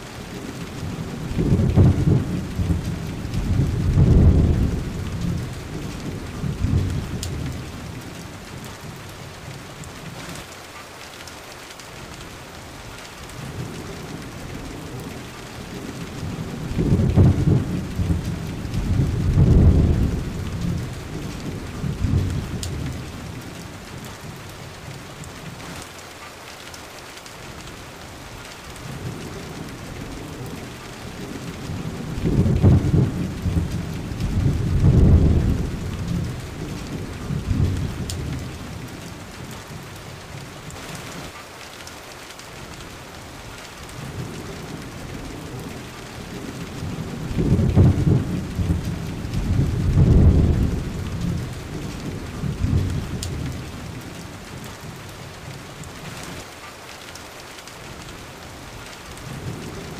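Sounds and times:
steady rain: 0.0 - 59.9
low thunder rolling: 0.3 - 8.1, 13.4 - 24.4, 28.8 - 39.8, 44.0 - 55.0.

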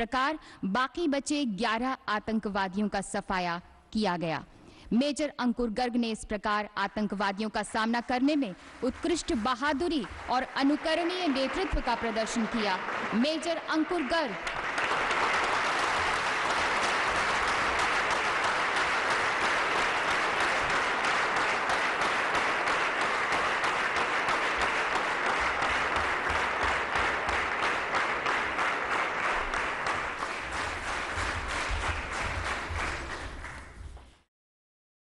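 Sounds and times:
audience applauding: 8.8 - 34.1.

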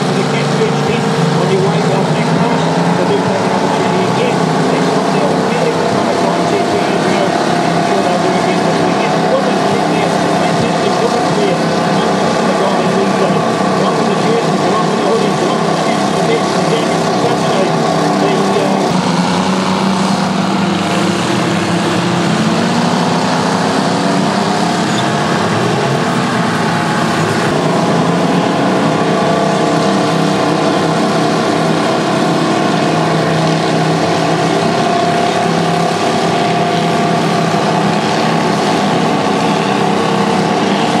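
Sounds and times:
bulldozer diesel engines revving: 0.0 - 41.0.

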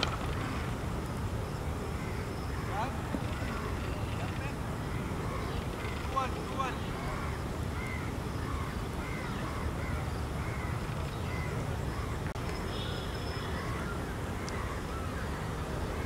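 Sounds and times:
crows cawing: 2.0 - 12.1.

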